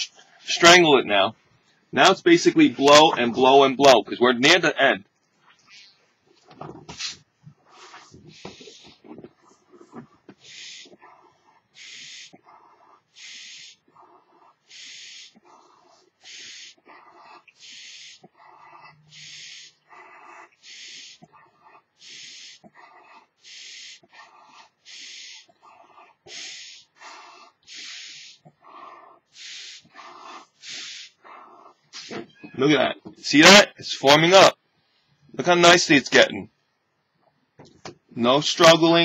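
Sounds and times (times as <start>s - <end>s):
person blowing up balloon: 6.9s - 21.3s, 22.0s - 32.3s.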